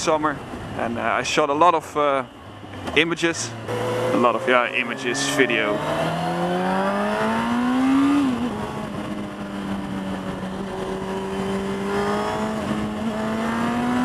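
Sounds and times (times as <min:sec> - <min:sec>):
motorcycle engine accelerating: 0:03.5 - 0:14.0.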